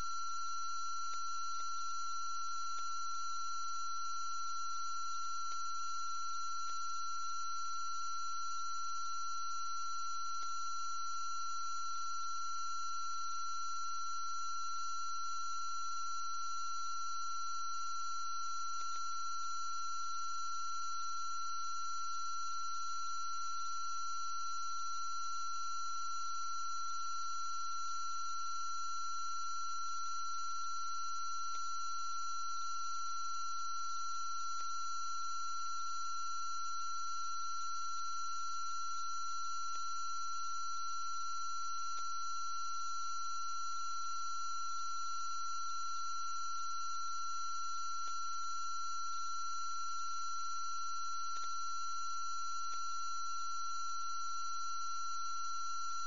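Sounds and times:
faint ticks: 1.0s - 1.3s, 2.7s - 2.9s, 5.5s - 5.7s, 6.6s - 6.8s, 18.8s - 19.1s, 31.5s - 31.7s, 34.5s - 34.8s, 39.7s - 39.9s, 41.9s - 42.1s, 51.3s - 51.5s, 52.6s - 52.9s.

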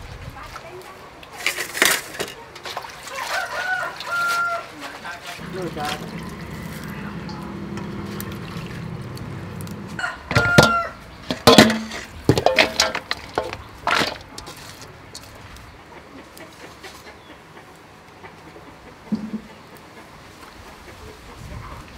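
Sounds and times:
chickens clucking: 2.3s - 21.9s
metal bowls knocking and clattering: 5.4s - 14.6s, 19.1s - 19.5s.

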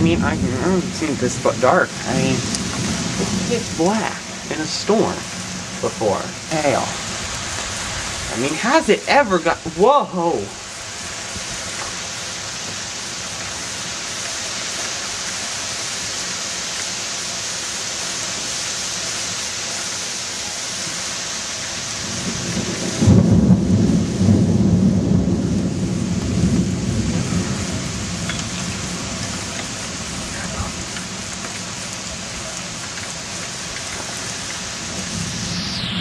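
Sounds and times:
heavy rain hissing: 0.0s - 36.0s
thunder: 22.0s - 30.8s, 34.8s - 36.0s.

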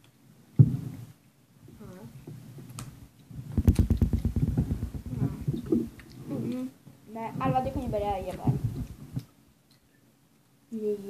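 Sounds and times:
fast pulsing rattle: 3.6s - 5.2s.

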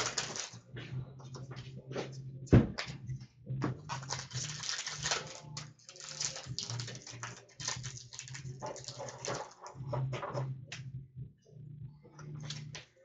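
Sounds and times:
wrappers and cards rustling: 0.0s - 0.6s, 3.8s - 10.4s
steady low hum: 9.8s - 12.8s.

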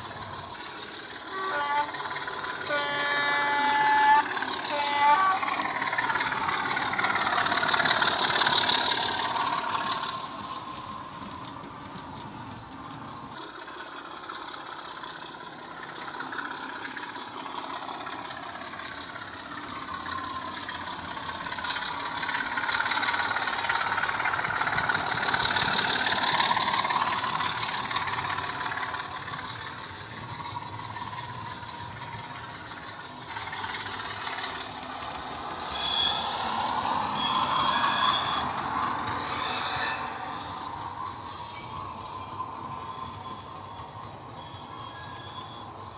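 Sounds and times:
model diesel engine sound: 0.0s - 45.9s
model train running on track: 0.0s - 45.9s
high-pitched squeals: 12.9s - 45.9s.

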